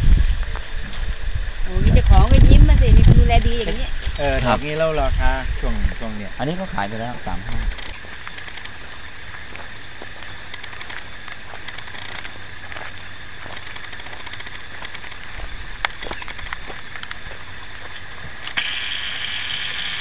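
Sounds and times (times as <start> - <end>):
outdoor background hiss: 0.0 - 20.0
faint clicks and crackles: 7.5 - 20.0.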